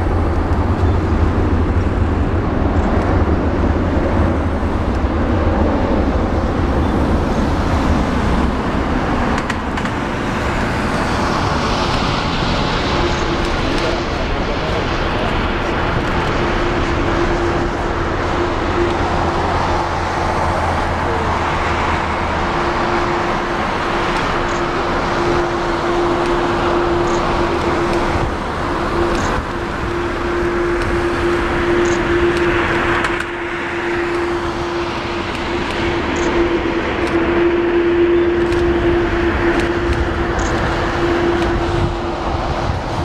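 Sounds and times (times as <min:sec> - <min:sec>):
jet engine roar: 0:00.0 - 0:43.0.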